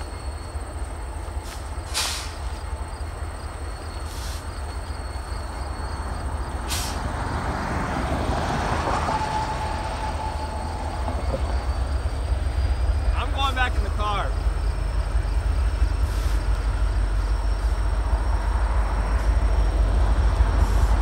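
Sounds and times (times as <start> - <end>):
thin steady squeal: 0.0 - 7.4, 8.9 - 21.0
train rumbling past: 0.0 - 21.0.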